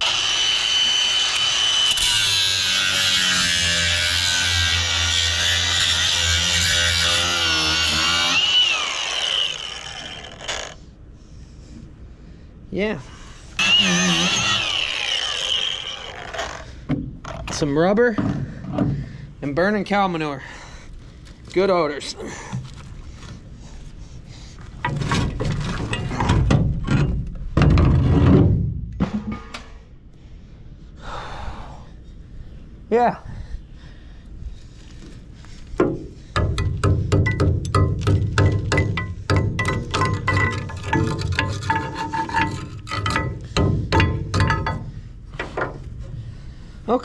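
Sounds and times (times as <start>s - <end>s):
angle grinder grinding steel: 0.0s - 10.8s, 13.6s - 16.7s, 39.9s - 44.6s
metal knocks and clanks: 24.8s - 29.8s, 35.8s - 45.8s.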